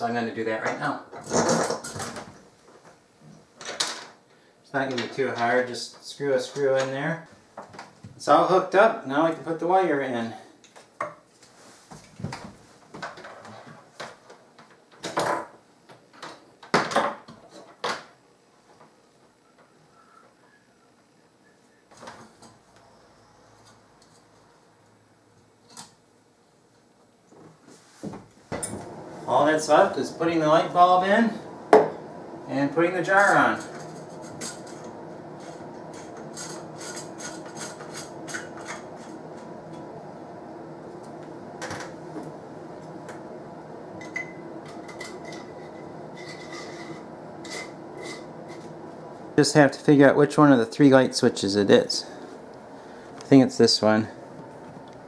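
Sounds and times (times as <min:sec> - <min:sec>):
steady background hum: 0:00.0 - 0:55.0
light bulb scraping in socket: 0:44.9 - 0:48.7.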